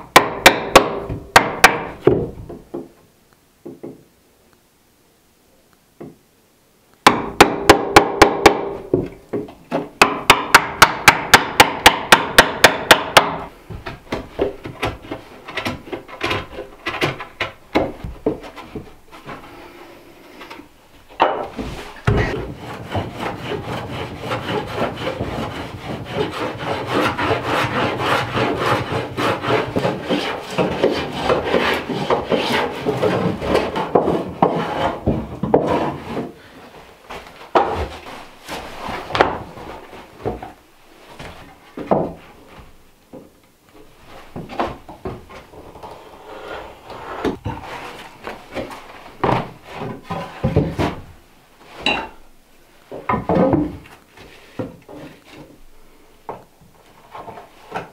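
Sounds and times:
rasping and scraping on wood: 21.6s - 36.5s, 45.7s - 51.0s
sharp tool strokes on wood: 21.8s - 36.3s.

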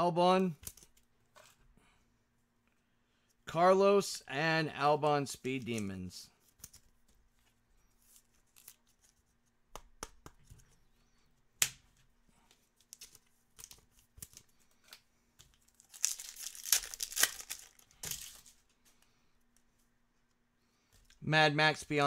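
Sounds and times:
cards clicking and tapping: 9.7s - 10.8s
wrapper tearing and crinkling: 15.6s - 18.6s.

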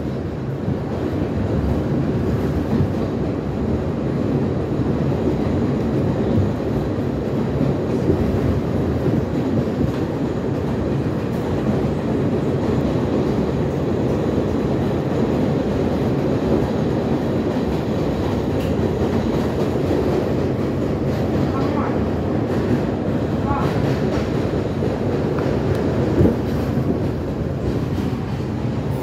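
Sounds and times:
subway car wheel and rail rumble: 0.0s - 29.0s.

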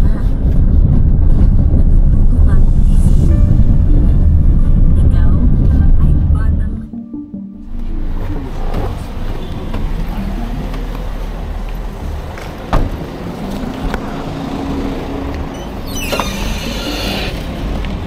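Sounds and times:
street traffic: 0.0s - 18.0s
car engine idling: 7.7s - 15.9s.

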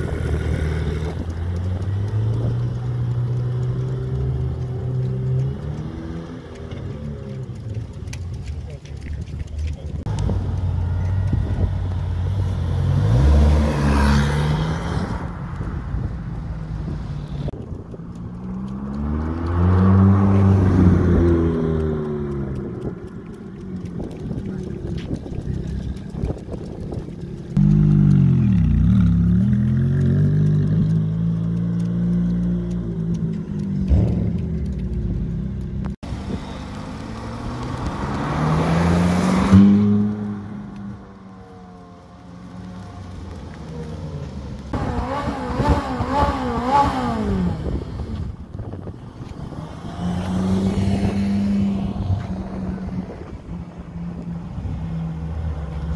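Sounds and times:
car engine running at low revs: 0.0s - 55.9s
car engine driving past: 27.4s - 48.1s.

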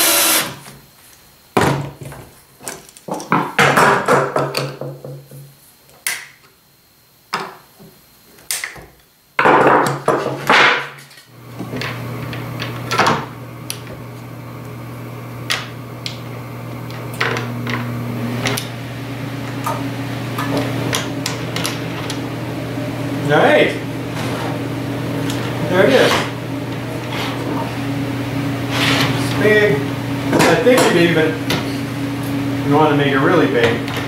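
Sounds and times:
steady low hum: 11.3s - 34.0s
scraping and rustling: 24.0s - 24.6s, 28.6s - 29.3s.

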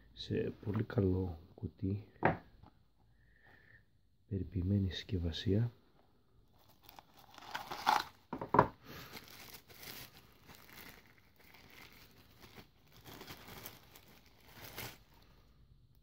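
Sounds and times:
plastic wrapping crinkling: 6.6s - 15.4s.

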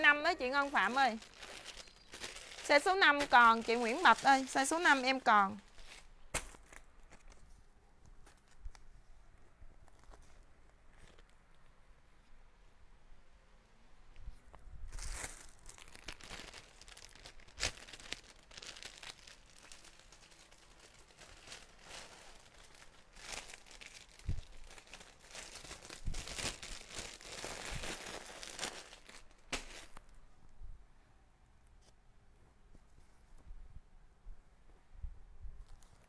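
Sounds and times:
clothing rustling: 0.1s - 5.0s.

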